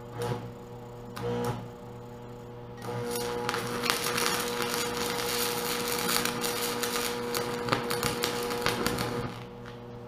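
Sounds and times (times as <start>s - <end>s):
welding arc crackling: 2.8s - 9.9s.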